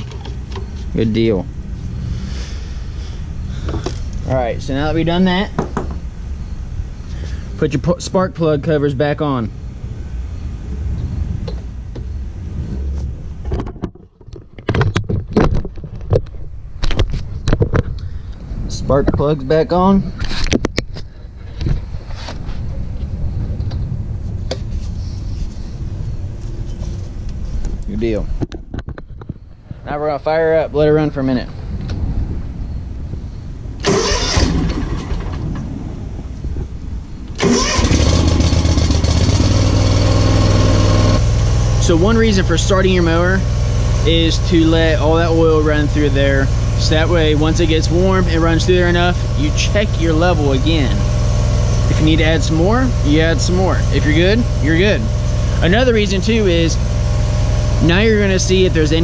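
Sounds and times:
wind rumble on microphone: 0.0s - 56.8s
mower engine cranking and running: 33.8s - 35.6s, 37.4s - 45.7s.

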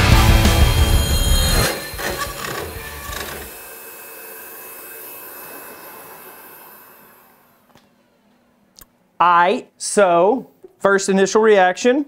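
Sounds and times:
router spindle cutting wood: 0.0s - 7.7s
dust extraction vacuum running: 0.0s - 7.9s.

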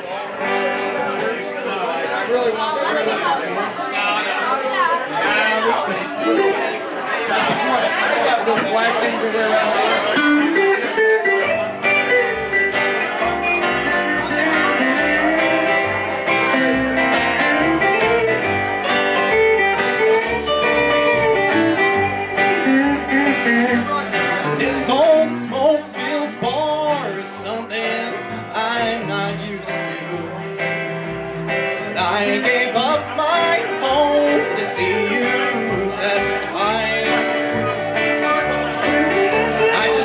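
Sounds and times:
country band playing: 0.0s - 40.0s
plucked low bass notes: 11.5s - 40.0s.

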